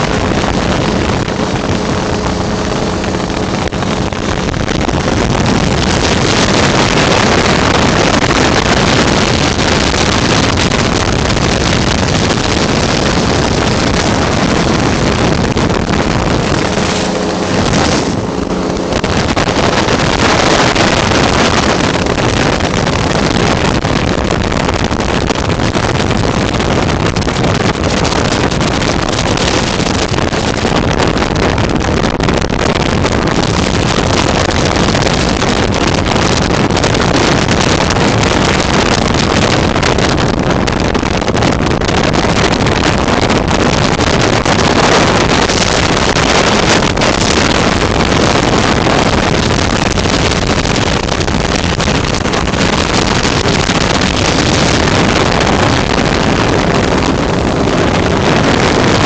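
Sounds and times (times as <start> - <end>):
aircraft engine and propeller: 0.0 - 9.2, 11.4 - 23.2
wind rushing over microphone: 0.0 - 59.0.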